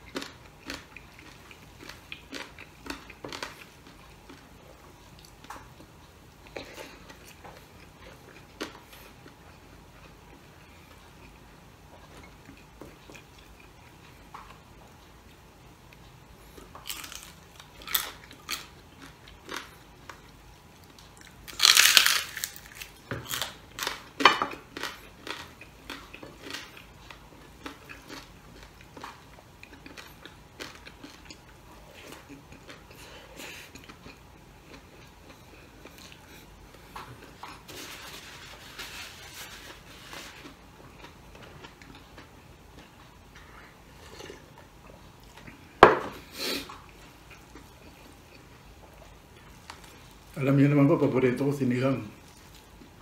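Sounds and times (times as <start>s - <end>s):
close-up chewing: 0.0s - 50.4s
crunching bites into crispy skin: 21.4s - 24.0s.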